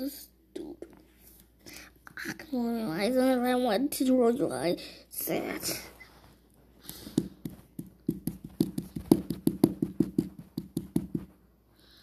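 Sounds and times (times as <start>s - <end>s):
plastic toy figures tapping: 6.8s - 11.3s.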